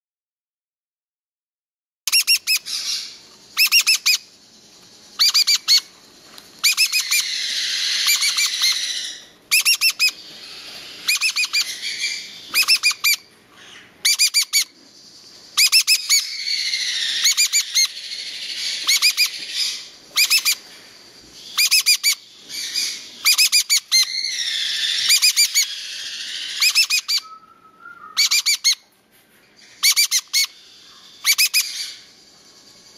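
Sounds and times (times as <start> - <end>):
parrot chick rasping calls: 2.1 - 4.3, 5.1 - 5.9, 6.6 - 14.7, 15.6 - 20.7, 21.4 - 27.4, 28.0 - 28.9, 29.6 - 32.2
parrot chick peeping: 2.1 - 5.9, 6.6 - 29.0, 29.6 - 32.9.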